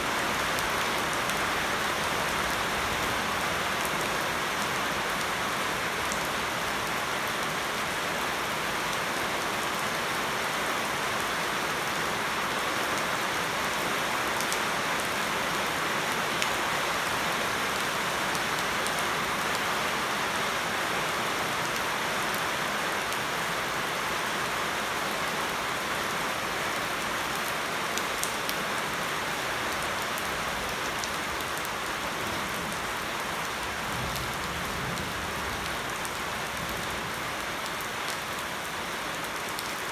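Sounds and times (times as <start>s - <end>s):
rain on water and shrubs: 0.0s - 39.9s.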